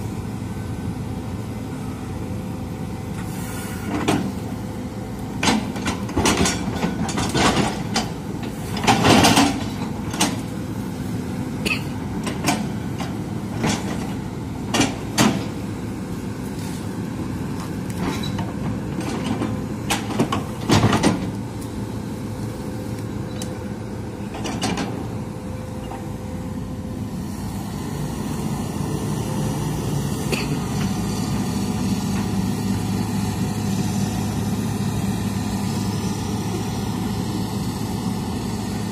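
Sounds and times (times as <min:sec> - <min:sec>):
excavator diesel engine running: 0:00.0 - 0:38.9
excavator bucket clanking: 0:05.4 - 0:10.5, 0:18.0 - 0:21.3.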